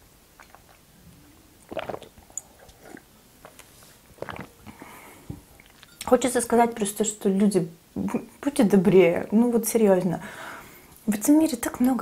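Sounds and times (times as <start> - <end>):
gulps of tea swallowed: 0.4 - 0.8, 1.6 - 5.9.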